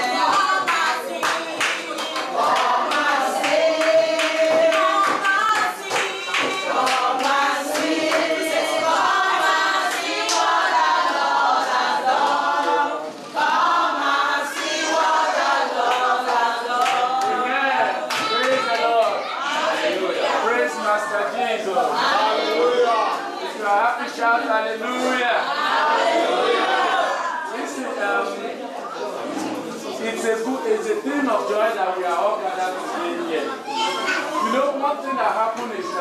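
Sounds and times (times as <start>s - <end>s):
congregation singing: 0.0s - 36.0s
hands clapping along: 0.2s - 8.6s, 15.8s - 17.4s.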